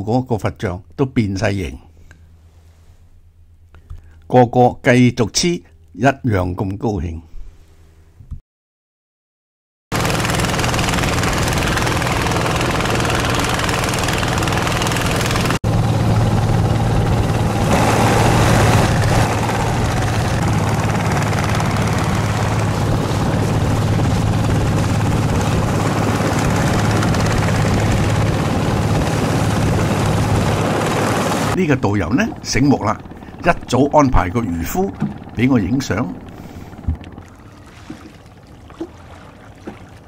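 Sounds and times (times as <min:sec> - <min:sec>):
boat engine drone: 0:10.0 - 0:40.0
water rushing: 0:17.4 - 0:31.6, 0:37.0 - 0:40.0.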